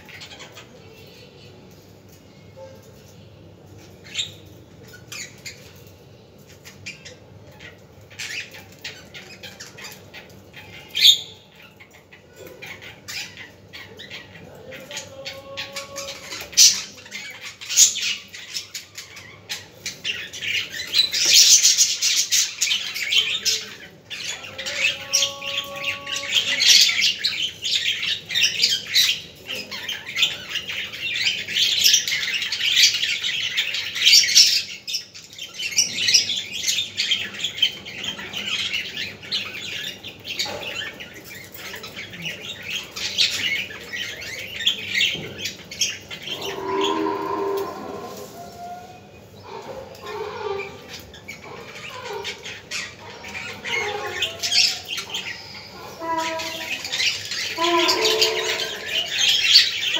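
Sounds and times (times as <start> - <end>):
budgerigars chattering: 49.4 - 59.9.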